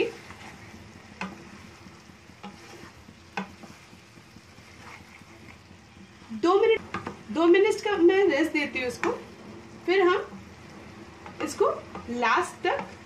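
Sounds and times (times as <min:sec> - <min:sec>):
faint food sizzling: 0:00.0 - 0:13.0
spatula knocking against pan: 0:01.1 - 0:01.5, 0:03.2 - 0:04.4, 0:11.2 - 0:13.0.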